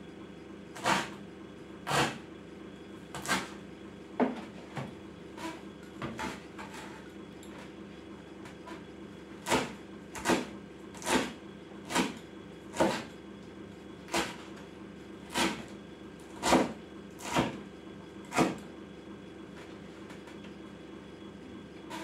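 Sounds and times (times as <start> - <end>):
cleaver chopping on wooden board: 16.4 - 17.6.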